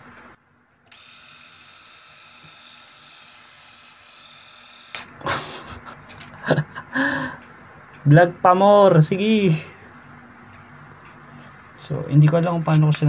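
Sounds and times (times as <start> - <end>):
electric shaver whirring: 0.9 - 5.2.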